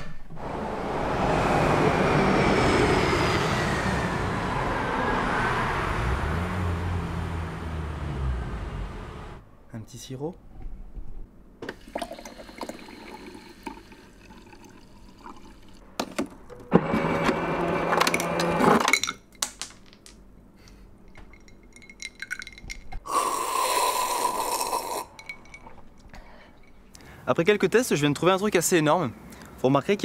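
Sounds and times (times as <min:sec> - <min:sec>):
water pouring into bottle: 0:11.8 - 0:15.8
small clinks and handling: 0:18.9 - 0:23.0, 0:25.1 - 0:27.1
person drinking from bottle: 0:23.0 - 0:26.4.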